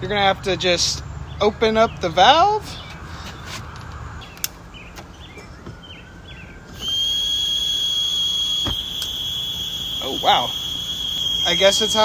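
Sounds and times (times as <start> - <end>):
burner high-pitched whistle: 6.7 - 12.0.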